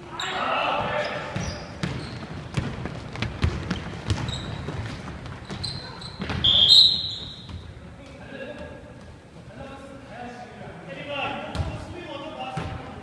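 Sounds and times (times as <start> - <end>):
sneaker squeak: 0.1 - 7.8
sneaker steps: 0.7 - 9.5
basketball bouncing on wooden floor: 1.3 - 6.6.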